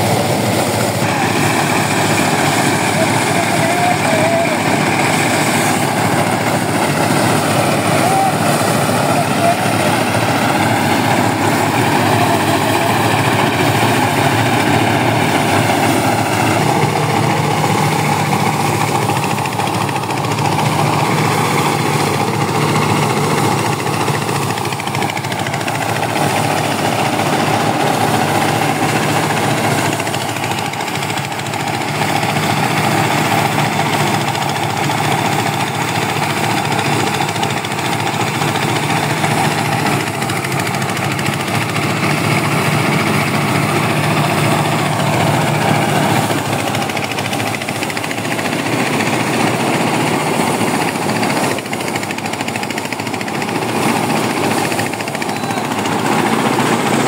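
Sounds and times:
diesel engine running: 0:00.0 - 0:57.0
thresher drum running: 0:00.0 - 0:57.0.

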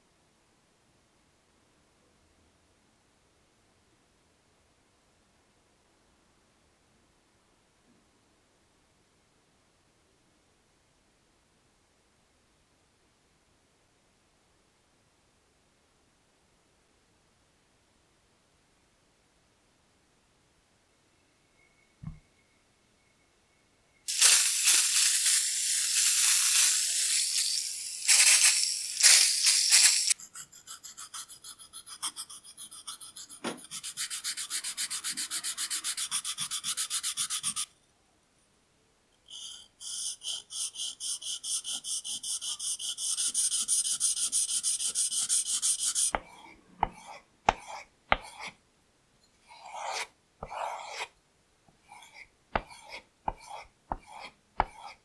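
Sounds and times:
liquid spraying in hissing bursts: 0:24.1 - 0:30.1
blade sharpening on whetstone: 0:26.2 - 0:37.7, 0:39.3 - 0:48.6, 0:49.5 - 0:51.1, 0:51.9 - 0:55.0.

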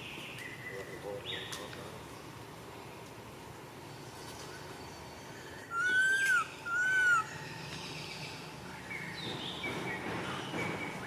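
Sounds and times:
young monkey crying: 0:05.7 - 0:07.3.

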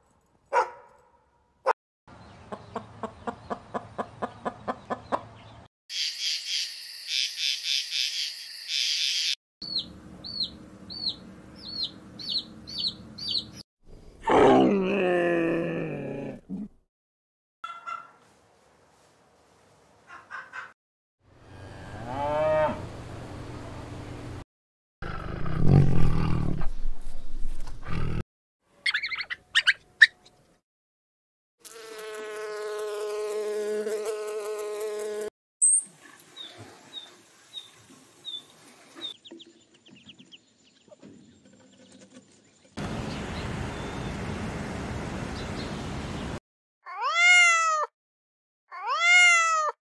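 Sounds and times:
cow mooing: 0:21.7 - 0:22.9
cat meowing: 0:46.9 - 0:47.9, 0:48.7 - 0:49.8.

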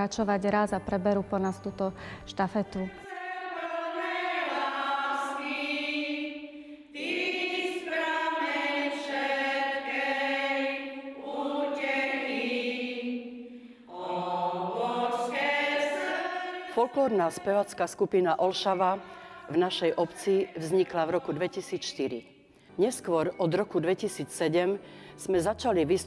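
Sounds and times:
singers breathing: 0:02.0 - 0:02.3, 0:06.4 - 0:07.0, 0:13.4 - 0:14.0, 0:19.0 - 0:19.5, 0:24.8 - 0:25.2
women's choir singing: 0:02.6 - 0:22.4.

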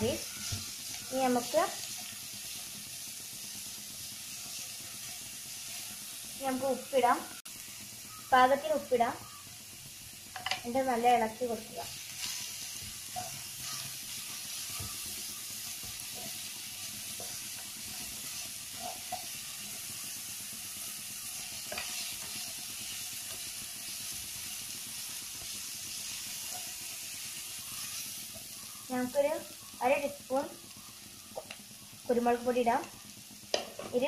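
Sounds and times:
vegetables sizzling in oil: 0:00.0 - 0:34.0
spatula scraping and tapping: 0:17.1 - 0:19.4, 0:21.6 - 0:22.5.

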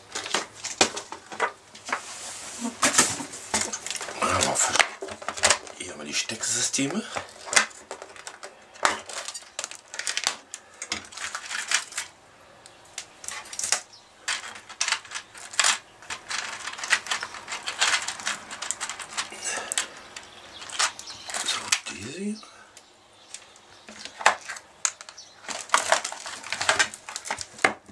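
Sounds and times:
plastic box clicks and rattles: 0:02.8 - 0:05.8, 0:06.8 - 0:12.1, 0:13.0 - 0:21.9, 0:23.3 - 0:27.9.

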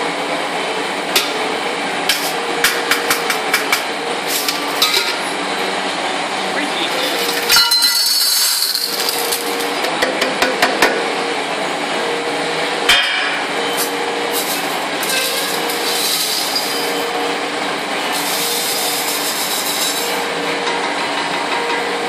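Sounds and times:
steady mechanical hum: 0:00.0 - 0:22.0
scrap metal rattling: 0:06.9 - 0:09.8, 0:14.3 - 0:17.0
scrap metal clinking into jug: 0:07.0 - 0:09.7, 0:13.8 - 0:17.0, 0:18.1 - 0:20.2.

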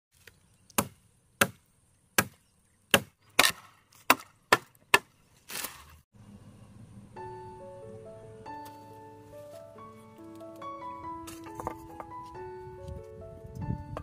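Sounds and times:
machete chopping into tree trunk: 0:00.2 - 0:01.6, 0:02.2 - 0:05.9.

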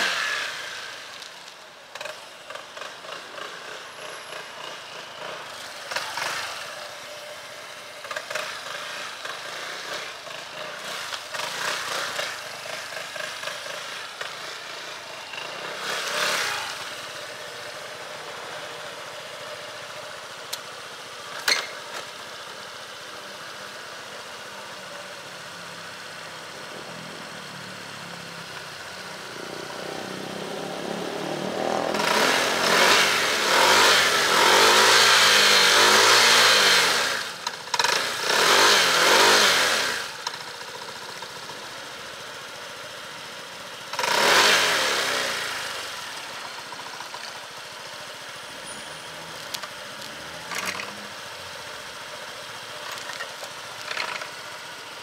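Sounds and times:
scooter engine passing: 0:25.6 - 0:41.1.

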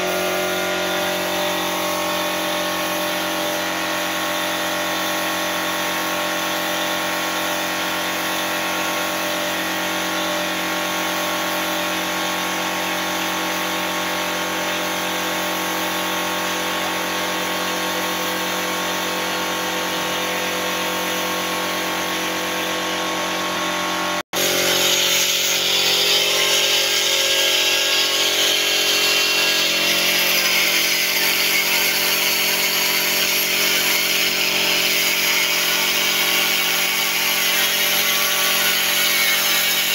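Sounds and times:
paint spray gun hissing: 0:00.0 - 0:23.6.

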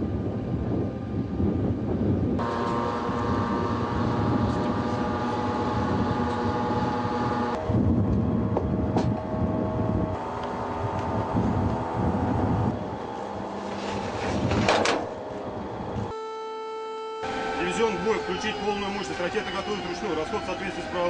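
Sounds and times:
wind on microphone: 0:00.0 - 0:16.1
heavy vehicle machinery rumbling: 0:00.0 - 0:16.2
multi-tone whine: 0:00.0 - 0:21.0.

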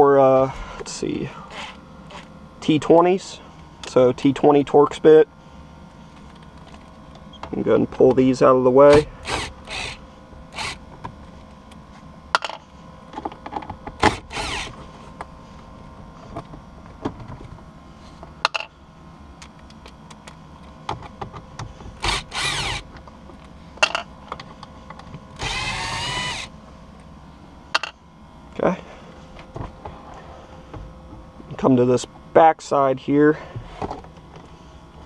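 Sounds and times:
clicks and knocks of tool and screws: 0:23.0 - 0:25.2
cordless drill backing out screws: 0:25.4 - 0:26.5.

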